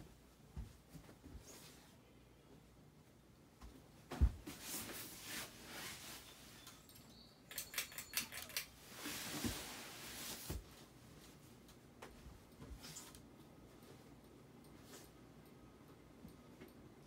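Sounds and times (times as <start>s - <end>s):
pull chain clicks and rattles: 7.0s - 8.7s.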